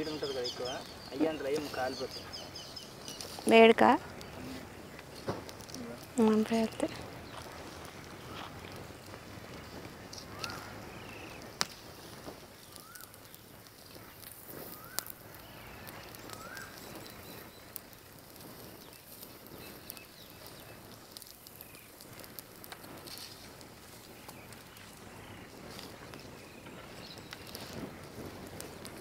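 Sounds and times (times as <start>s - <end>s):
nuts popping in fire: 0.0s - 29.0s
wood fire crackling: 0.0s - 29.0s
bird rising call: 10.2s - 11.5s, 12.7s - 13.1s, 14.6s - 17.7s.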